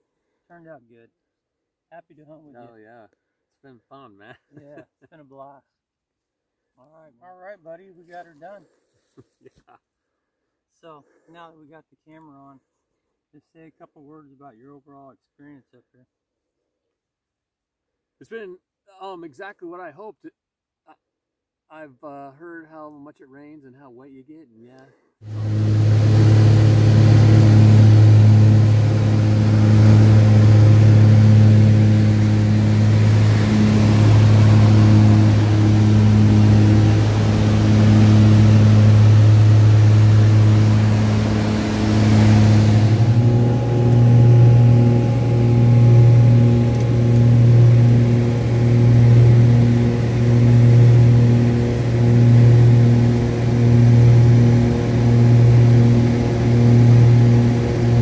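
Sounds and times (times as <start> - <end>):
propeller plane cabin drone: 25.2 - 58.0.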